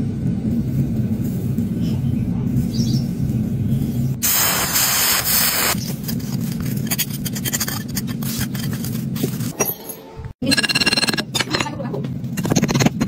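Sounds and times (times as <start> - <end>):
loud hiss: 4.2 - 5.8.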